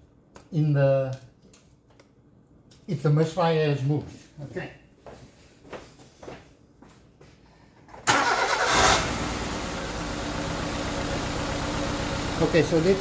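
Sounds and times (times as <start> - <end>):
car engine starting and idling: 8.0 - 13.0.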